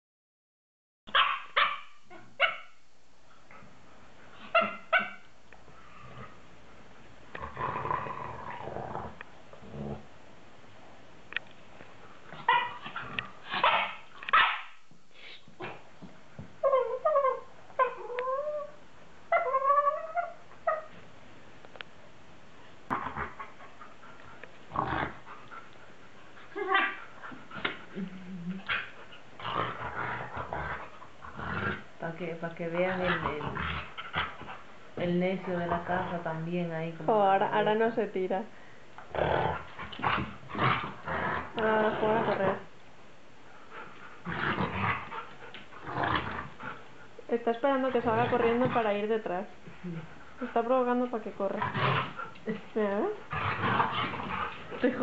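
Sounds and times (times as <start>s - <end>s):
small dog barking: 1.1s - 2.8s, 12.5s - 12.8s, 13.6s - 14.7s
dog whine: 4.4s - 5.3s, 16.6s - 21.0s, 26.5s - 28.9s
dogs play-wrestling: 11.7s - 14.4s, 22.9s - 32.0s, 32.7s - 36.2s, 39.0s - 42.7s, 43.5s - 55.0s.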